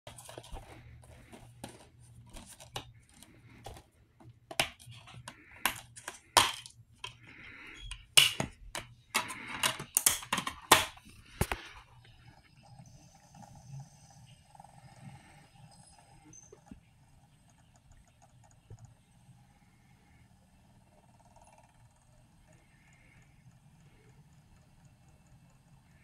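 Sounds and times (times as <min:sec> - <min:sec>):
rustling: 0:00.1 - 0:06.4
plastic case clicks and snaps: 0:08.2 - 0:11.6.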